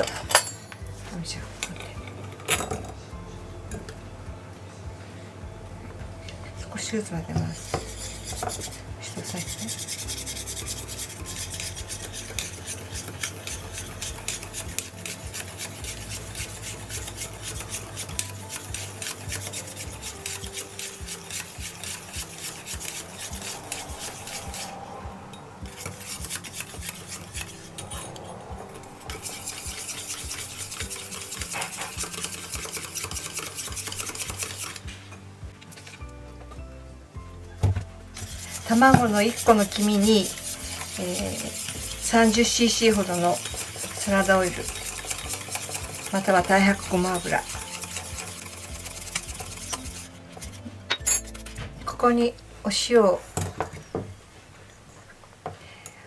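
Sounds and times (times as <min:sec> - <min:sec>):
whisk scraping metal bowl: 0:07.4 - 0:25.0, 0:25.7 - 0:34.8, 0:38.2 - 0:52.2.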